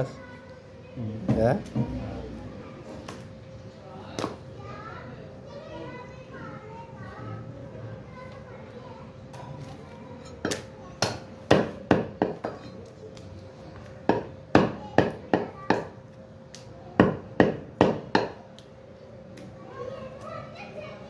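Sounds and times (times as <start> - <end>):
meat cleaver chopping on wooden block: 10.5 - 12.6.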